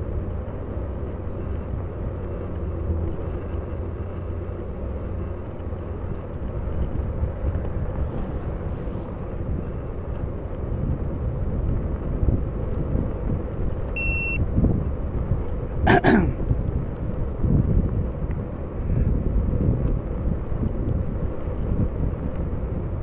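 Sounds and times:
wind on microphone: 6.4 - 23.0.

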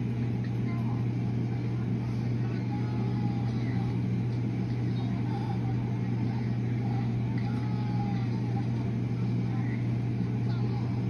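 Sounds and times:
faint distant voices: 0.0 - 11.0
low mechanical hum: 0.0 - 11.0.

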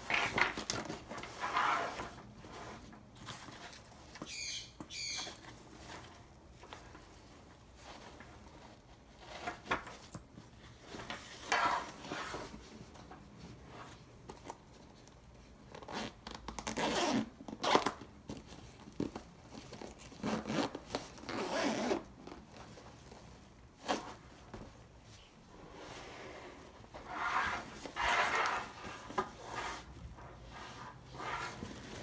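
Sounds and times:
zipper pulled open: 15.7 - 18.0, 20.2 - 22.1
bag fabric rustling: 18.4 - 24.9.

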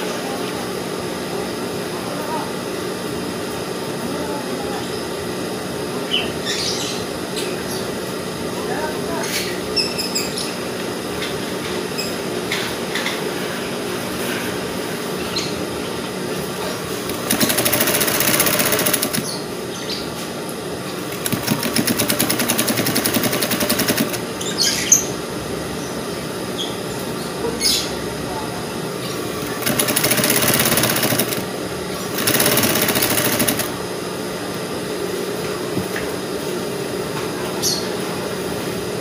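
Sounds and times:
sewing machine stitching: 17.1 - 19.4, 21.1 - 24.3, 29.4 - 31.5, 32.1 - 33.8.

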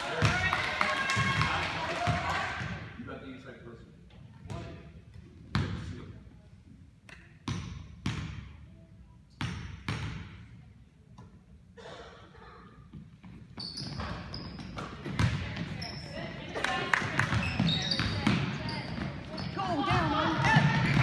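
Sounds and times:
basketball bouncing on gym floor: 7.1 - 8.6, 9.4 - 10.5, 12.9 - 16.0, 17.0 - 21.0.

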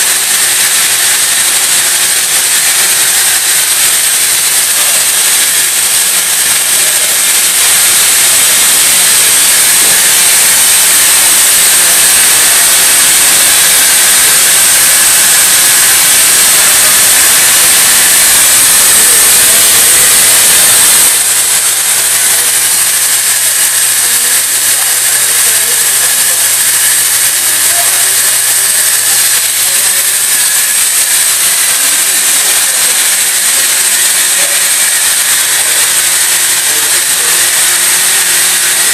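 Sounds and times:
high machine whine: 0.0 - 38.9
machine tool hissing: 0.0 - 38.9.

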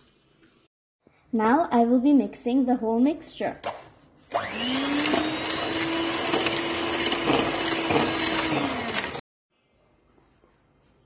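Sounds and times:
electric hand mixer whirring: 4.3 - 9.2.

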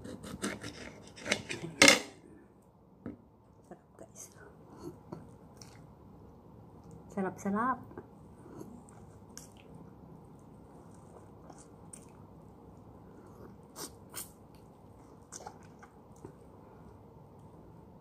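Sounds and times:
wet mouth sounds: 15.2 - 16.3.

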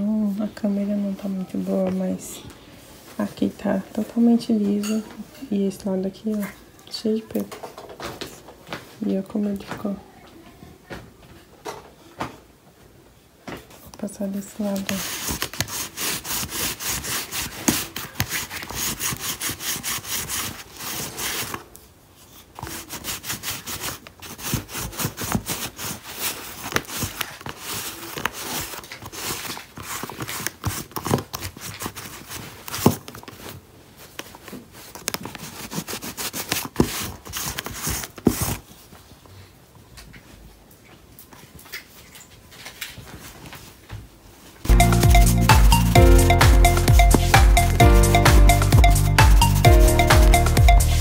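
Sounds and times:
lint roller rubbing on denim: 14.6 - 21.6, 22.3 - 33.0, 34.3 - 38.7.

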